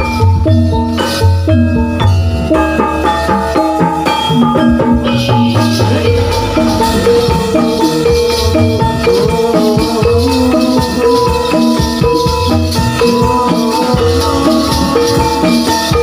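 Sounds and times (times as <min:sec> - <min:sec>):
gamelan dance music: 0:00.0 - 0:16.0
leg bells jingling: 0:03.0 - 0:16.0
drum strokes: 0:03.6 - 0:16.0.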